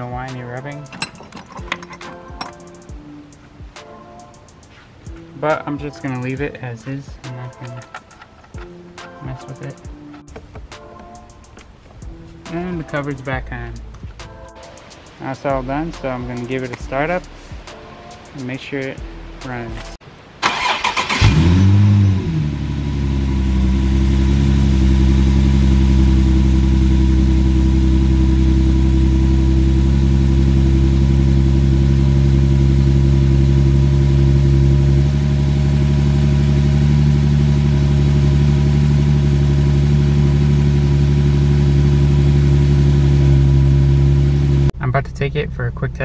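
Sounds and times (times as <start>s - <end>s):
car engine starting and idling: 0.0s - 3.7s, 20.4s - 46.0s.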